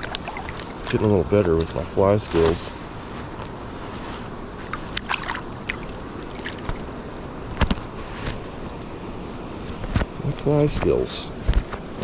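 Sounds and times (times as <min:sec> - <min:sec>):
water trickling and dripping: 0:00.0 - 0:02.3, 0:04.8 - 0:07.2.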